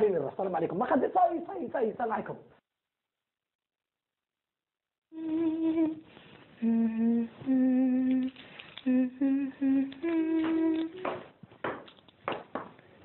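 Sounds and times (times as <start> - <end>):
woman humming: 5.1 - 11.3.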